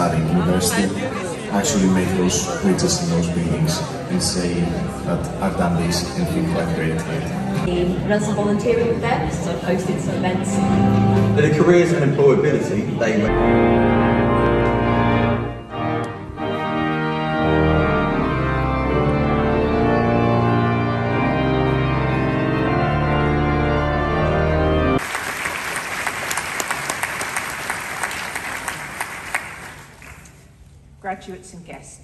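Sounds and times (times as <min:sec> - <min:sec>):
organ playing held chords: 0:00.0 - 0:27.3
crowd applauding: 0:25.0 - 0:30.5.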